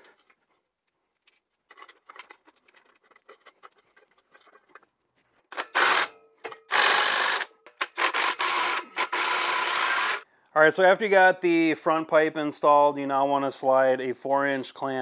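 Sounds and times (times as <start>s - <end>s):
cordless power tool bursts: 5.6s - 10.2s.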